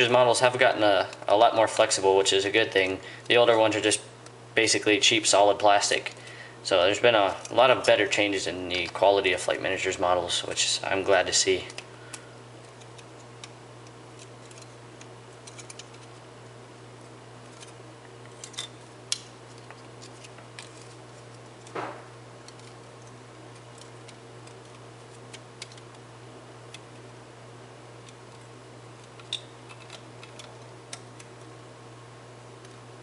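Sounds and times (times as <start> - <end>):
plastic parts clicking and tapping: 23.6 - 26.0, 29.0 - 31.3.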